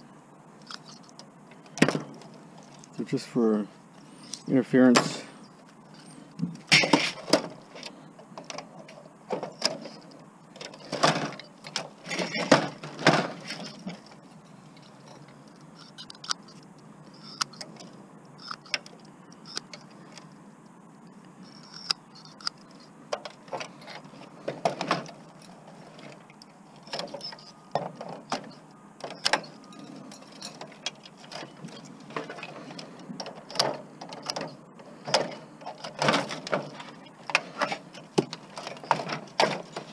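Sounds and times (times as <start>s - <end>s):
metal parts rattling: 10.6s - 14.0s, 26.8s - 39.9s.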